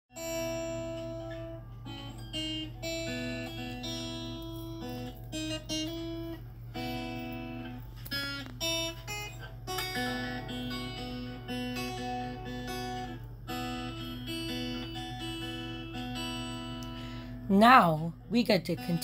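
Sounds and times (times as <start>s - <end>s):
acoustic guitar melody: 0.1s - 19.0s.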